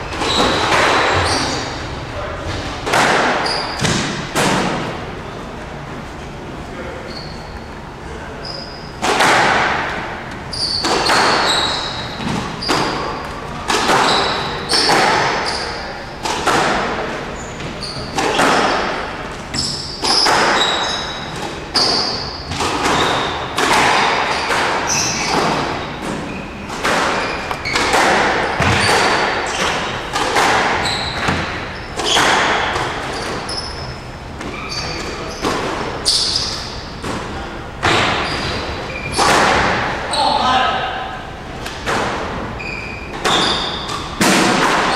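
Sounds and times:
shoes squeaking on floor: 0:00.0 - 0:04.2, 0:06.9 - 0:09.1, 0:10.4 - 0:16.2, 0:17.2 - 0:40.4, 0:42.6 - 0:44.2
squash ball cracking off walls: 0:09.0 - 0:10.0, 0:10.7 - 0:15.5, 0:21.4 - 0:33.4, 0:39.1 - 0:39.9, 0:43.2 - 0:44.9.

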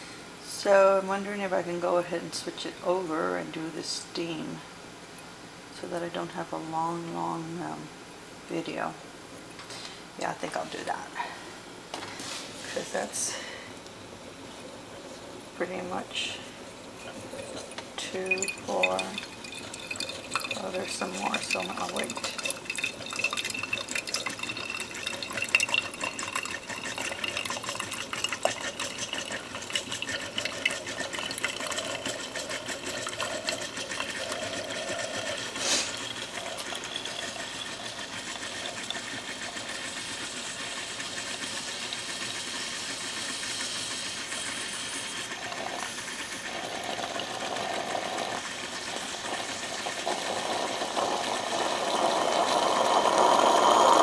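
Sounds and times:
coffee sputtering and dripping: 0:14.5 - 0:54.0
steam hiss: 0:34.2 - 0:36.2, 0:37.0 - 0:54.0.

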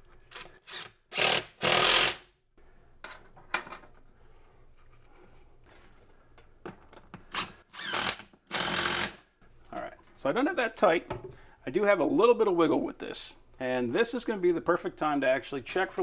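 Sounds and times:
cordless drill driving screws: 0:00.3 - 0:02.2, 0:07.3 - 0:09.2.

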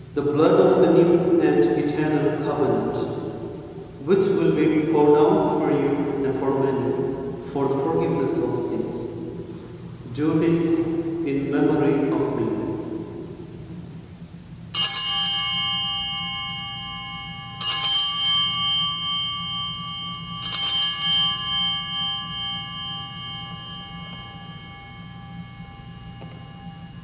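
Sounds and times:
bell ringing: 0:14.7 - 0:27.0.

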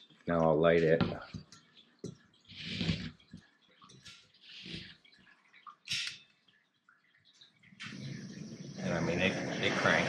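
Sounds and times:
gas hissing: 0:07.8 - 0:10.0.

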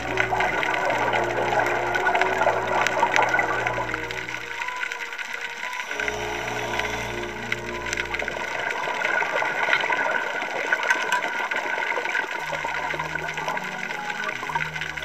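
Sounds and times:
low held music notes: 0:00.0 - 0:10.6
underwater hiss with crackling: 0:00.0 - 0:15.0.

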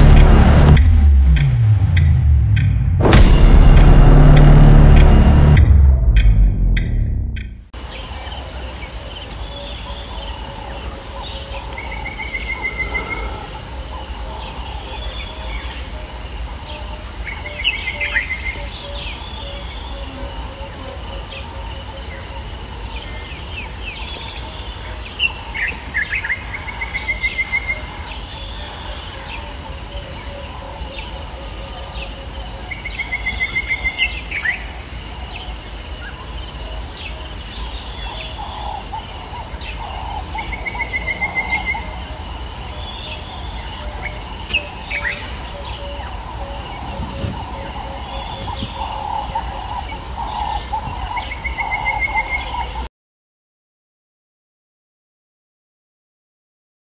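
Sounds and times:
high-pitched insect drone: 0:07.8 - 0:52.9
birds trilling: 0:07.9 - 0:15.9, 0:37.0 - 0:52.8.

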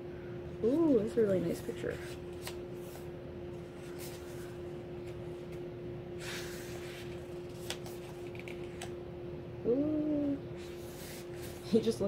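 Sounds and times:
steady low hum: 0:00.0 - 0:12.0
page turning rustle: 0:02.0 - 0:03.1, 0:03.8 - 0:05.6, 0:06.2 - 0:08.9.

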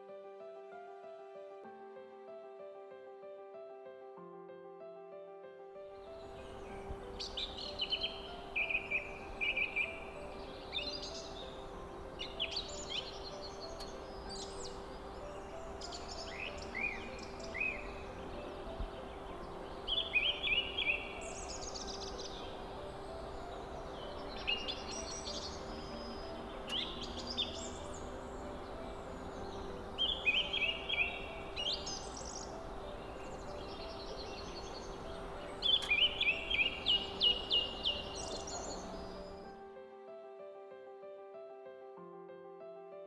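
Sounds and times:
songbird chirping: 0:05.8 - 0:39.7.

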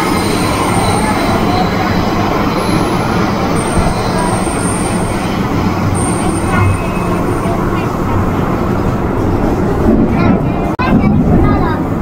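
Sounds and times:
high wheel squeal: 0:00.0 - 0:07.9
train wheels rumbling on rail: 0:00.0 - 0:12.0.

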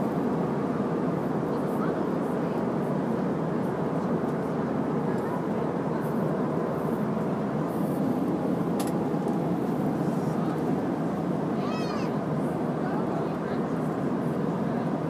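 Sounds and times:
airliner cabin noise: 0:00.0 - 0:15.0.

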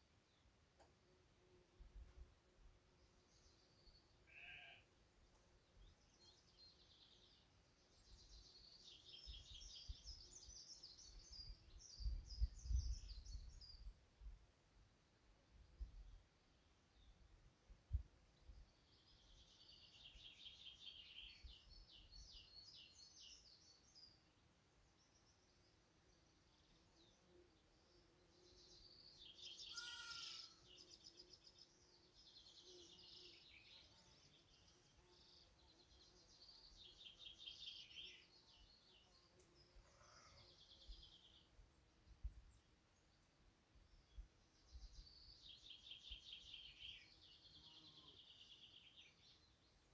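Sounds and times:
songbirds trilling: 0:27.9 - 0:41.5.

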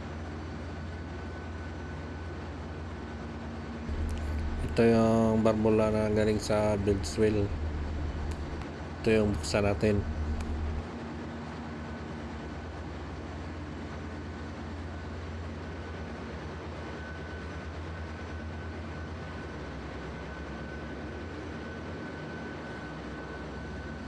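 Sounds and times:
engine room machinery drone: 0:03.8 - 0:24.0
high steady whine: 0:03.9 - 0:10.9.

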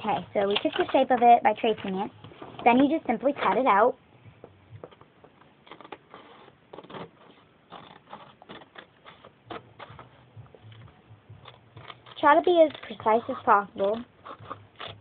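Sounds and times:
paper rustling: 0:04.8 - 0:10.8, 0:11.4 - 0:15.0
scissors snipping paper: 0:05.7 - 0:10.2, 0:11.4 - 0:15.0.

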